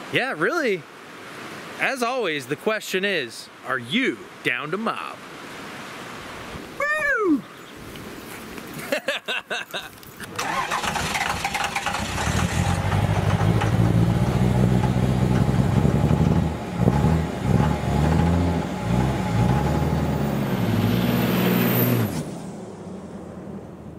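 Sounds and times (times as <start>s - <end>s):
vehicle engine revving: 10.4s - 22.9s.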